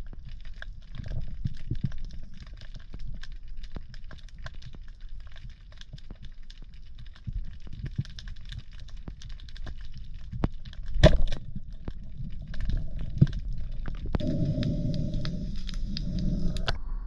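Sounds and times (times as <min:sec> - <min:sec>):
fine clicking and crackling underwater: 0:00.0 - 0:16.8
speargun crack underwater: 0:10.4 - 0:11.7.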